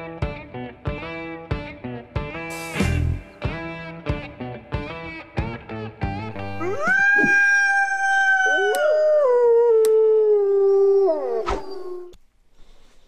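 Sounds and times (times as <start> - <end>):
wolves howling: 6.4 - 12.2.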